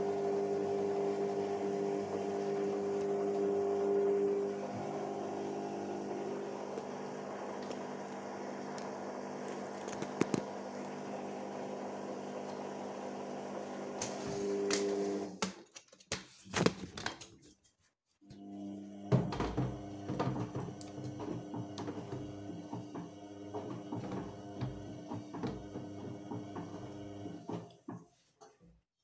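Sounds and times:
washing machine motor hum: 0:00.0 - 0:15.4, 0:18.2 - 0:28.1
washing machine knocks and clicks: 0:19.1 - 0:28.0.

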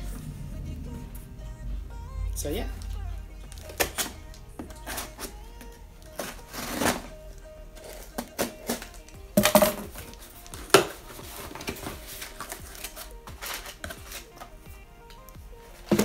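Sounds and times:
quiet background music: 0:00.0 - 0:16.0
cardboard and tape scraping: 0:03.5 - 0:05.4, 0:06.0 - 0:07.2, 0:07.8 - 0:09.1, 0:09.7 - 0:14.6.

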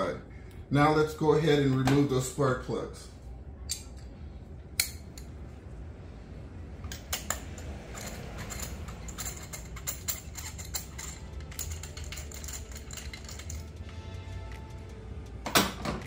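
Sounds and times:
low steady hum: 0:00.0 - 0:16.0
tools clinking: 0:06.8 - 0:16.0.

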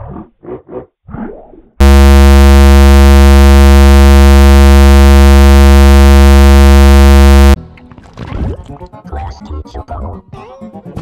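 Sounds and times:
harsh electronic buzzing tone: 0:01.8 - 0:07.6.

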